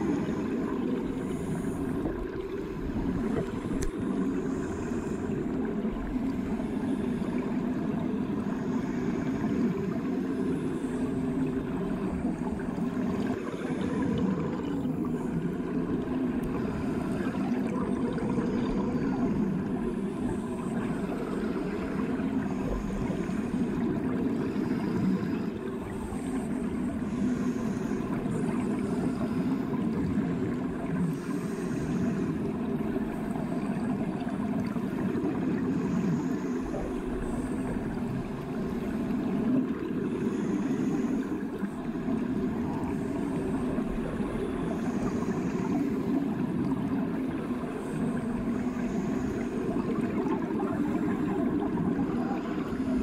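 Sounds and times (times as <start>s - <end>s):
muffled underwater rush: 0.0s - 53.0s
faint high ticks: 3.3s - 4.1s, 16.3s - 16.6s.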